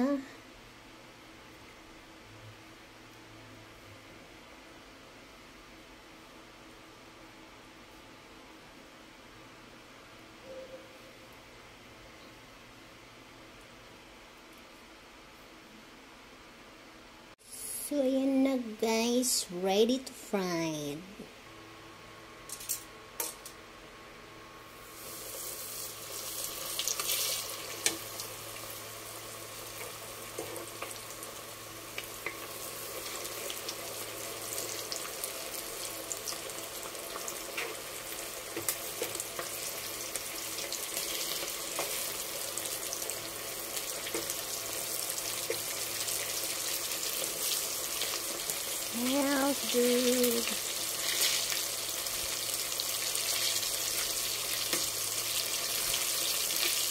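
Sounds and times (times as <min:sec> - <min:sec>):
chicken deep-frying in oil: 0:24.7 - 0:56.9.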